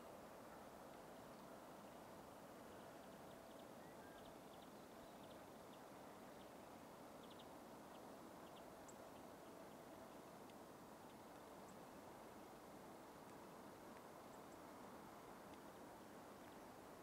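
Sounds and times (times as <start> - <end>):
faint outdoor hiss: 0.0 - 17.0
soft high ticks: 0.5 - 2.1, 7.2 - 16.7.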